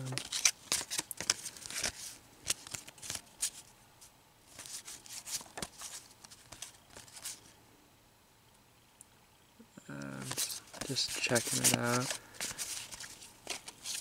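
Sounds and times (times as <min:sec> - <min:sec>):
cards flicking and rustling: 0:00.0 - 0:03.7, 0:04.5 - 0:07.6, 0:10.0 - 0:14.0.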